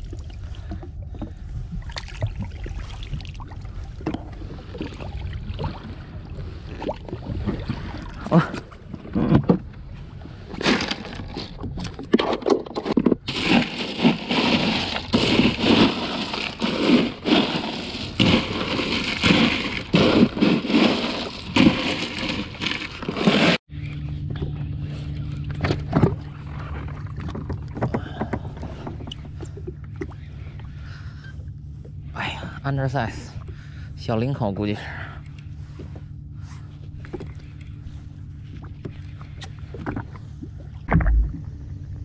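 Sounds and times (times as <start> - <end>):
engine humming: 3.4 - 42.0.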